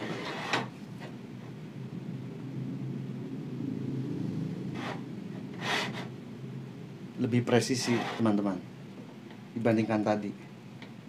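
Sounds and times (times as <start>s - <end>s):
miter gauge rubbing in slot: 0.0s - 0.8s, 7.8s - 8.5s
steady low hum: 0.0s - 11.0s.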